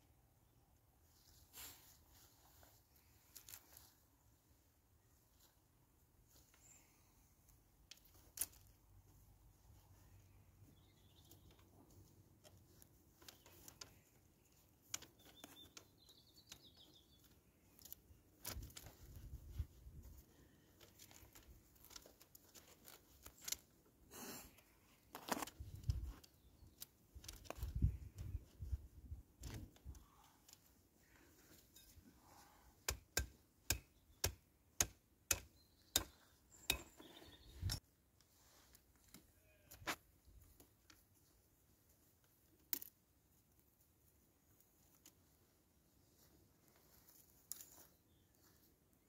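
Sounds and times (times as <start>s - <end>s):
willow rods rustling: 1.0s - 49.0s.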